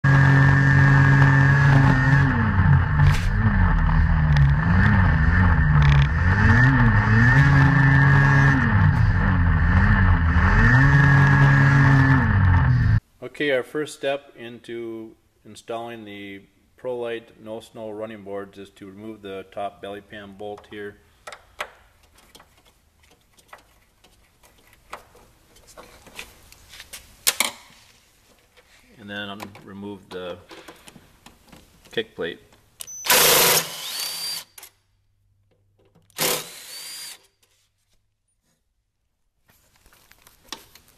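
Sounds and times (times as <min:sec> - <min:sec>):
snowmobile engine revving: 0:00.0 - 0:13.0.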